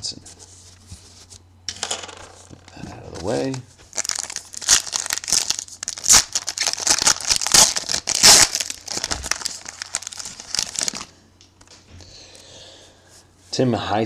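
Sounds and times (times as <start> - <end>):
foil pack crinkling: 2.6 - 11.2.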